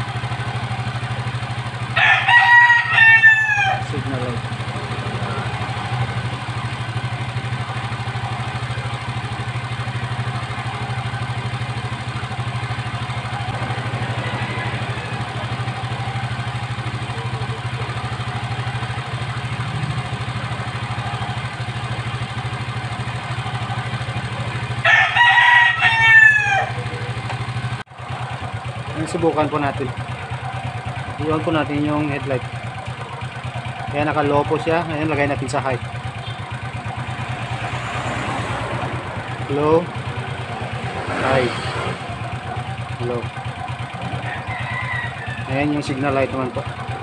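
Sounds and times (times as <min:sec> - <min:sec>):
motorcycle engine idling: 0:00.0 - 0:47.0
rooster crowing: 0:01.3 - 0:06.8, 0:10.1 - 0:18.9, 0:23.0 - 0:27.7, 0:43.8 - 0:45.7.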